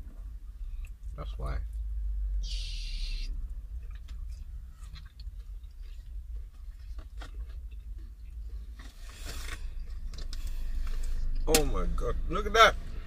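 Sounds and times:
steady low rumble: 0:00.0 - 0:13.0
chewing crispy food: 0:03.7 - 0:11.2.

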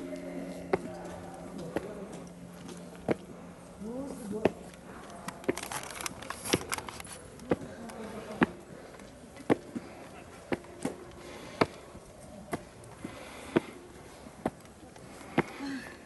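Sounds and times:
footsteps on stone stairs: 0:06.4 - 0:15.7.

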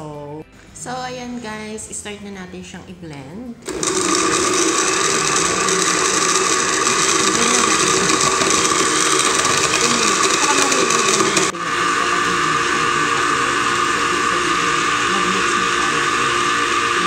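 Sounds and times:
blender motor whirring: 0:03.6 - 0:17.0.

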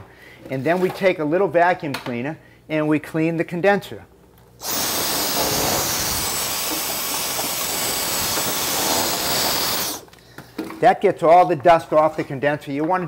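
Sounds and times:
handheld vacuum cleaner running: 0:04.6 - 0:10.1.

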